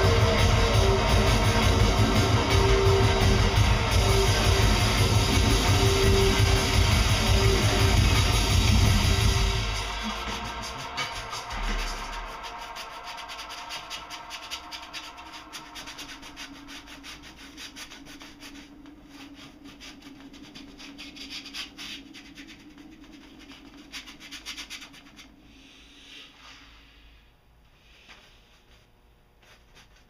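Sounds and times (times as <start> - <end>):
paint scraping on canvas: 11.0 - 25.4.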